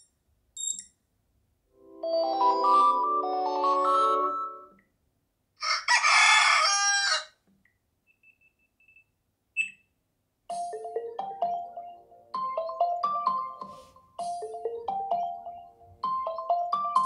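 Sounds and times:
melodic tone of quick notes: 0:01.8 - 0:04.7
recorded rooster crowing: 0:05.6 - 0:07.4.

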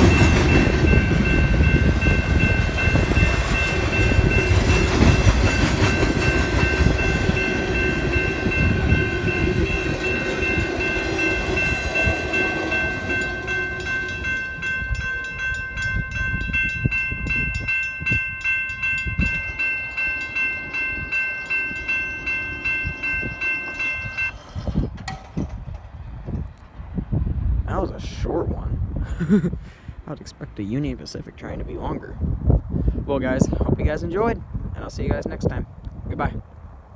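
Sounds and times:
railroad crossing bell ringing: 0:00.0 - 0:24.6
freight train rumbling past: 0:00.0 - 0:28.9.

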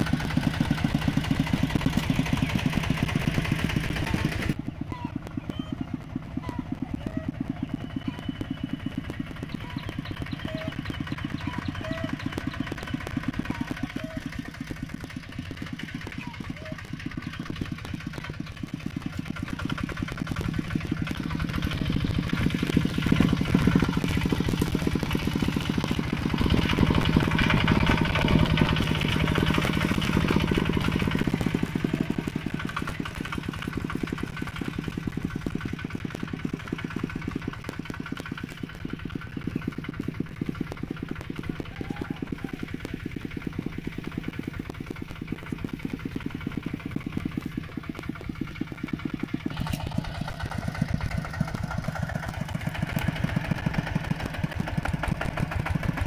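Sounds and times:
tractor engine puttering: 0:00.0 - 0:56.0.

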